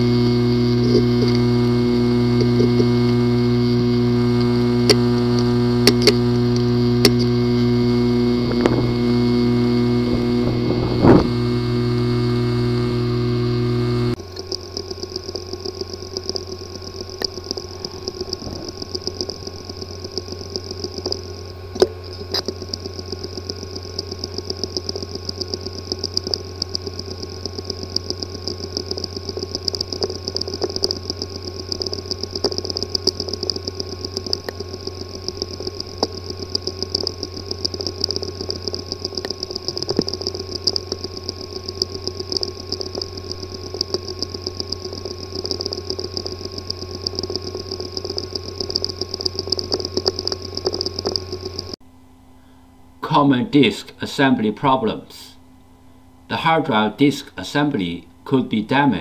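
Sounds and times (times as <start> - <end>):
hard drive clicking: 0.0 - 51.8
hard drive hum and whine: 0.0 - 59.0.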